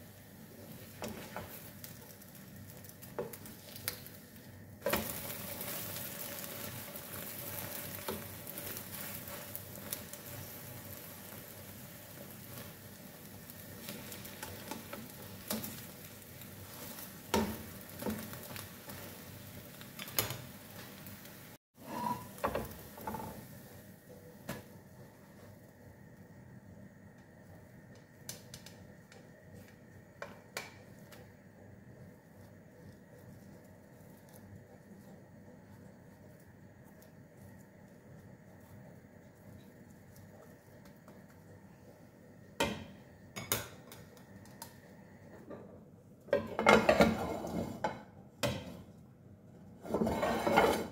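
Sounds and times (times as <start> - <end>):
omelette sizzling in frying pan: 0.0 - 49.0, 49.7 - 50.9
spatula scraping a pan: 16.6 - 19.2, 21.8 - 23.4, 46.5 - 48.0, 49.8 - 50.9.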